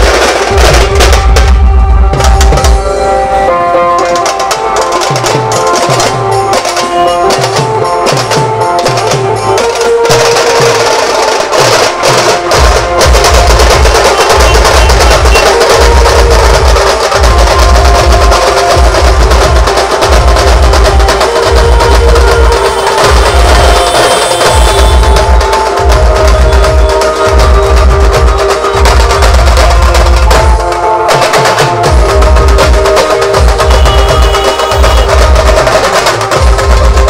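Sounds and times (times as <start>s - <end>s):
drums beating: 0.0s - 37.0s
loud music over loudspeakers: 0.0s - 37.0s
heavy pulsing bass beat: 12.6s - 30.6s.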